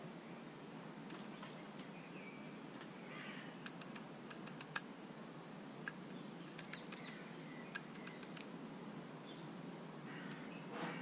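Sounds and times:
faint bird chirps: 0:01.1 - 0:03.7, 0:06.1 - 0:08.4, 0:09.2 - 0:11.0.

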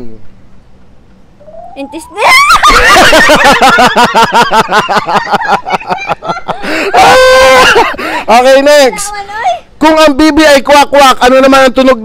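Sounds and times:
man laughing loudly: 0:02.3 - 0:08.2.

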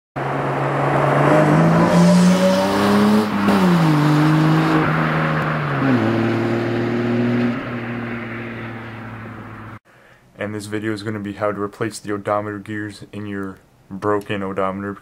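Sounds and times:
car engine accelerating: 0:00.2 - 0:09.8.

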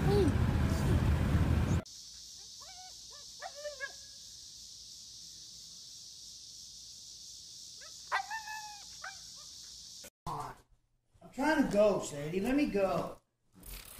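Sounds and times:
car wind and road noise: 0:00.0 - 0:01.8.

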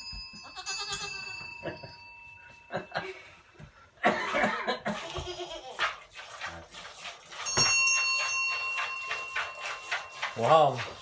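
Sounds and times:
high ringing tone: 0:00.0 - 0:03.0
goats bleating: 0:04.9 - 0:05.8.

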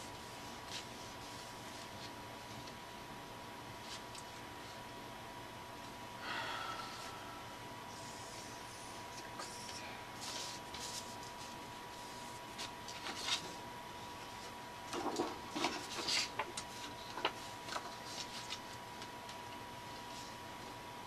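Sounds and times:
paper rustling: 0:10.2 - 0:13.6, 0:14.9 - 0:19.1.

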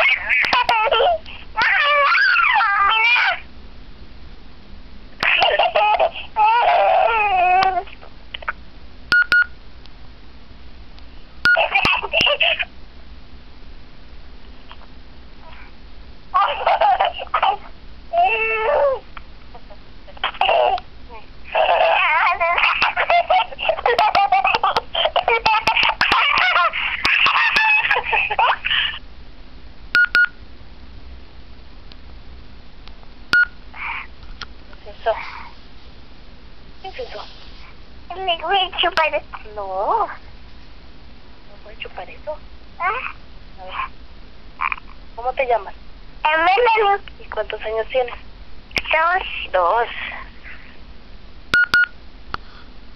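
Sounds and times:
toddler giggling through phone speaker: 0:00.0 - 0:03.4, 0:05.2 - 0:08.6, 0:11.5 - 0:12.7, 0:16.4 - 0:19.0, 0:19.6 - 0:29.0
short keypad beeps: 0:09.1 - 0:09.5, 0:30.0 - 0:30.4, 0:33.4 - 0:33.6, 0:51.6 - 0:51.9.

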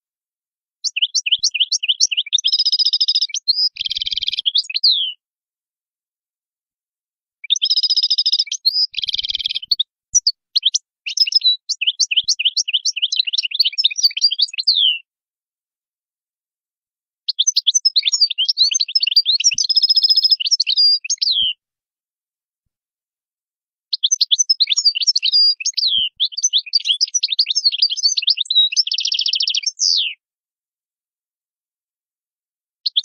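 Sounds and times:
goldfinch singing: 0:00.8 - 0:05.2, 0:07.4 - 0:15.0, 0:17.3 - 0:21.6, 0:23.9 - 0:30.2.

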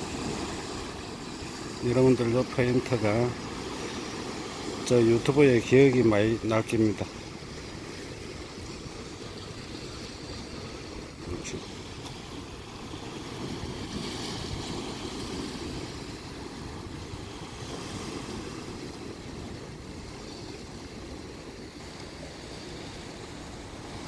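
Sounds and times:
waves washing against rocks: 0:00.0 - 0:24.0.

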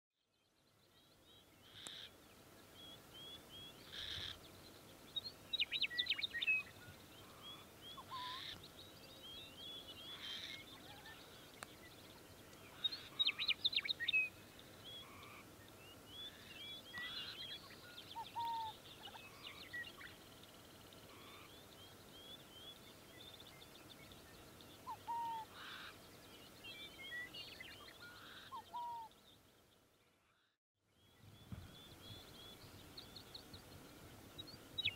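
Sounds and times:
faint steady background noise: 0:00.2 - 0:34.9
low bird calls: 0:03.2 - 0:04.4, 0:05.6 - 0:08.6, 0:12.5 - 0:20.2, 0:21.0 - 0:22.8, 0:24.8 - 0:29.2
birds chirping and whistling: 0:16.1 - 0:20.1, 0:24.9 - 0:25.8.

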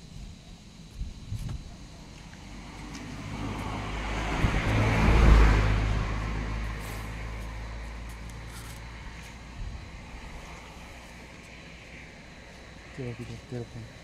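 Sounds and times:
motor vehicle passing: 0:02.3 - 0:13.1.

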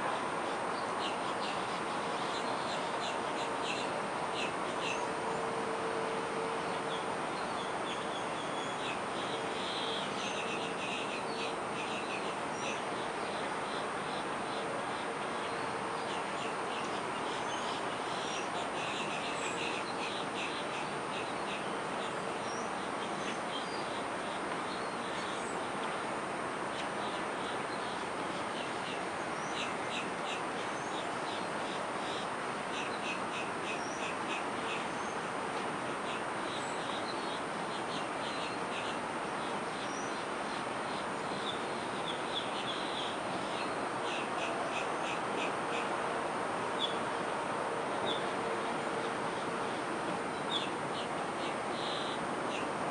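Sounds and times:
birds calling: 0:26.8 - 0:35.3, 0:36.0 - 0:46.0, 0:49.3 - 0:52.8.

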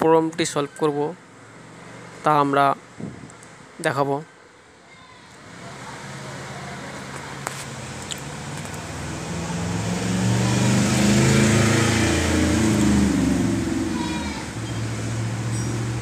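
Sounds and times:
vehicle engine humming: 0:05.4 - 0:16.0.

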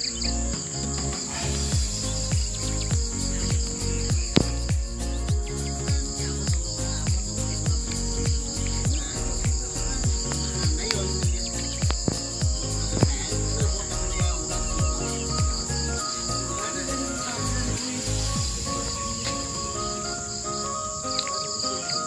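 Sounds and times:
held bass notes: 0:00.0 - 0:20.4
crickets trilling: 0:00.0 - 0:22.0
music with deep kick drum: 0:00.5 - 0:16.1, 0:18.3 - 0:18.7.

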